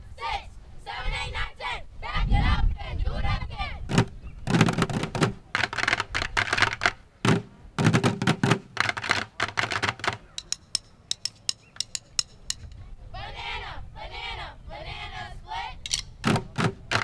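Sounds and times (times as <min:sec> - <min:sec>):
drumsticks on plastic buckets: 0:03.9 - 0:12.8, 0:15.8 - 0:17.0.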